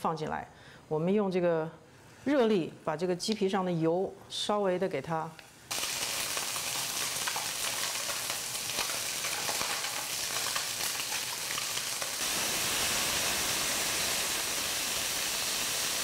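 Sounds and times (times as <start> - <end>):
small crackles: 5.7 - 12.3
chicken sizzling in a pan: 5.7 - 16.0.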